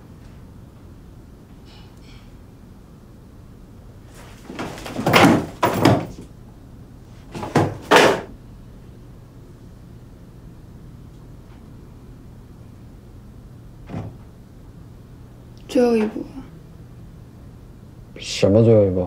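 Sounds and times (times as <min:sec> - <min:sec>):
heavy thuds on a door: 0:04.4 - 0:06.3, 0:07.3 - 0:08.3.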